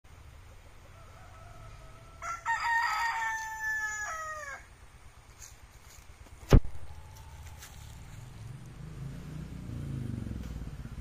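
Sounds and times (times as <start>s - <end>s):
rooster crowing: 0.9s - 4.7s.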